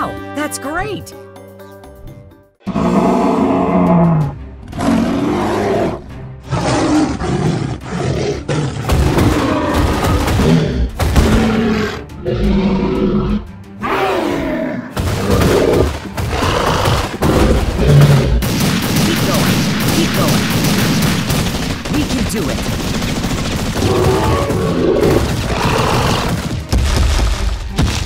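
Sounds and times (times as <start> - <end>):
gunfire bursts: 18.0 - 26.7.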